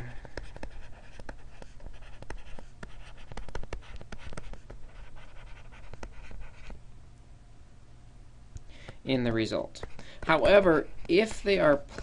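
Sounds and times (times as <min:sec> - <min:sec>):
stylus tapping and scratching screen: 0:00.2 - 0:06.8, 0:09.7 - 0:12.0.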